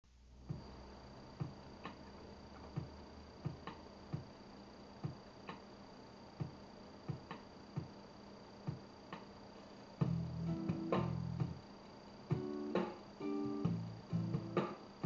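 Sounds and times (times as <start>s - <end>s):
quiet steady hum: 0.0s - 15.0s.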